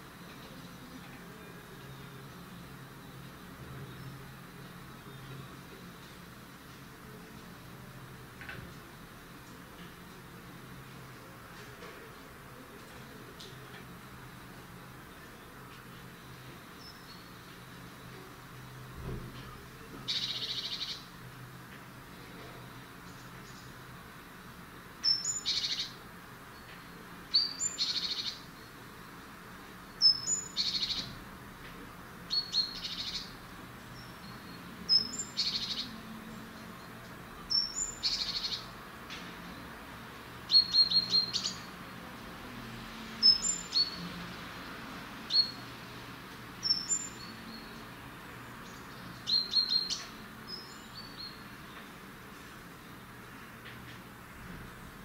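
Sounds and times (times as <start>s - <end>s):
blue tit calling: 20.1s - 21.0s, 25.0s - 26.0s, 27.3s - 28.5s, 30.0s - 31.1s, 34.4s - 36.0s, 37.5s - 38.7s, 40.5s - 41.7s, 46.6s - 47.7s, 49.2s - 51.4s.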